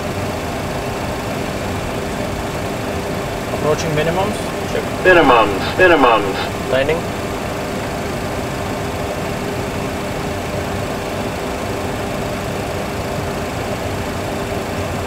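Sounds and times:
simulated engine and airflow noise: 0.0 - 15.0
faint steady hum: 3.2 - 7.9.

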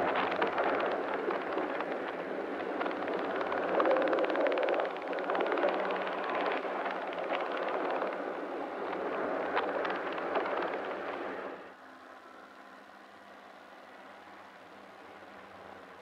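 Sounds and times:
tram wheels rumbling on rail: 0.0 - 11.6.

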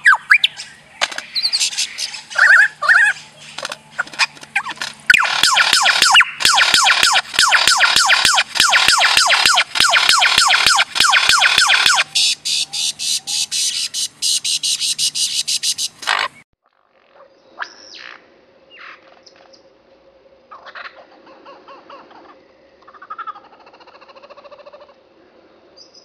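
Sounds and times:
bird mimicking alarm pulses: 0.0 - 16.4
faint steady hum: 18.2 - 23.1.

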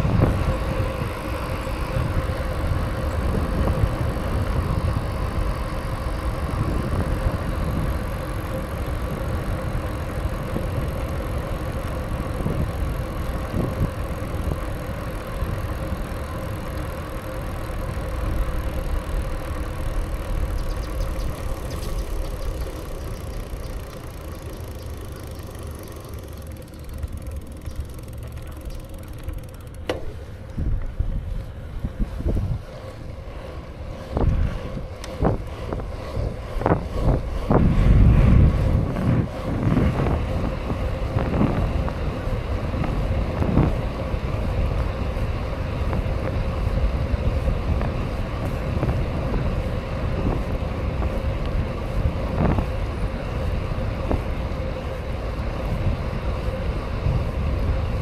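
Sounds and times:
wind on microphone: 0.0 - 16.6, 30.5 - 58.0
bike tyre hum on pavement: 0.0 - 58.0.

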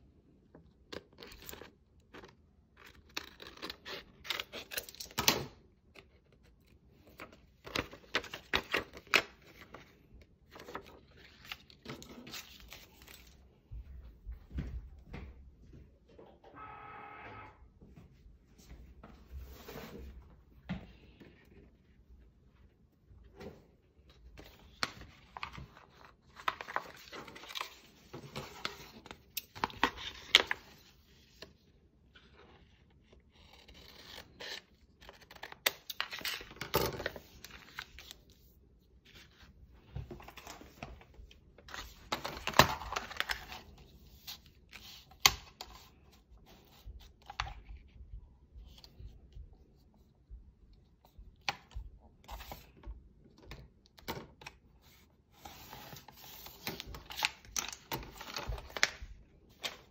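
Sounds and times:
vinyl sheet crinkling and tearing: 24.6 - 30.9, 33.4 - 38.2.

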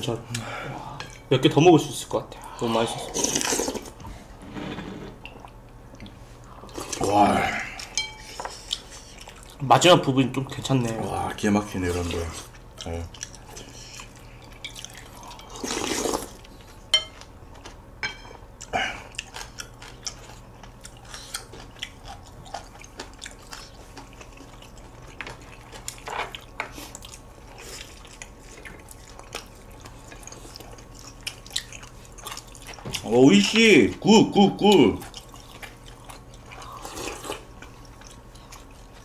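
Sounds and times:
chewing: 5.2 - 9.6, 12.1 - 17.8, 18.6 - 33.1, 35.0 - 39.0
spoons clinking against bowls: 7.9 - 8.5, 16.9 - 17.2, 18.0 - 18.4
slurping broth: 15.5 - 16.4.

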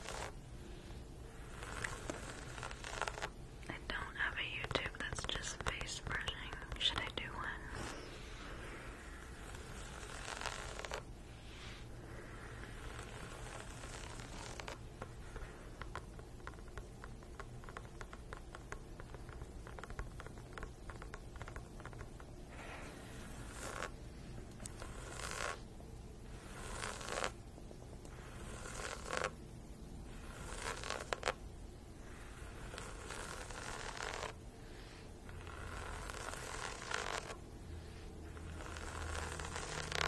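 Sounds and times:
fingernails scratching basketball: 0.0 - 0.4, 1.4 - 3.4, 9.0 - 24.0, 24.6 - 25.7, 26.3 - 27.4, 28.0 - 29.4, 30.1 - 31.4, 32.1 - 34.4, 35.3 - 37.4, 38.2 - 40.0.

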